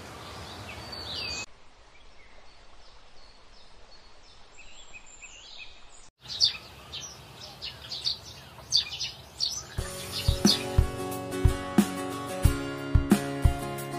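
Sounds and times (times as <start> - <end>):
outdoor background noise: 0.0 - 11.0
bird chirps: 0.2 - 10.9.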